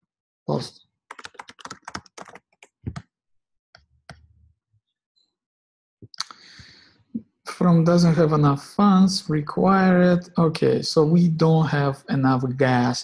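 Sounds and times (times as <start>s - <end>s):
keyboard typing: 1.1s - 3.1s, 3.8s - 4.3s.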